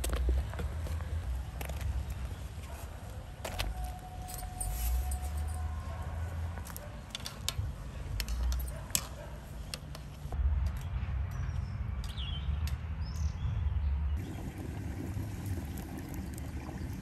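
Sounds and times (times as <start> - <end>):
low rumble of boiling: 14.2 - 17.0.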